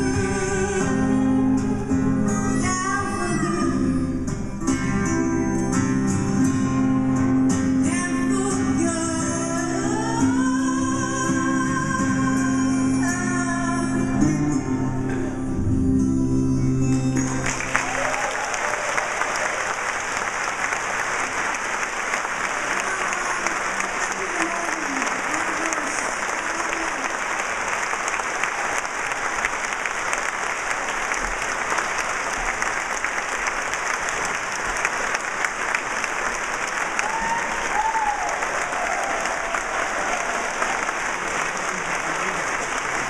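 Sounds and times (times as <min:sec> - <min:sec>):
audience applause: 0:17.1 - 0:43.0
voices cheering: 0:17.6 - 0:29.7, 0:36.6 - 0:43.0.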